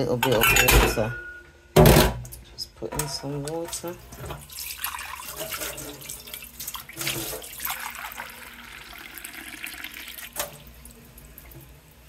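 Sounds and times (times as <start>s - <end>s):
tap water running into a glass: 4.1s - 11.7s.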